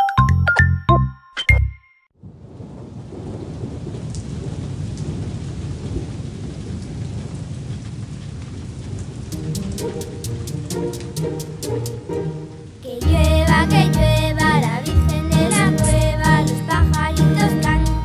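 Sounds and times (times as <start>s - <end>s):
steady rain falling: 2.2s - 18.0s
plucked music notes: 9.3s - 18.0s.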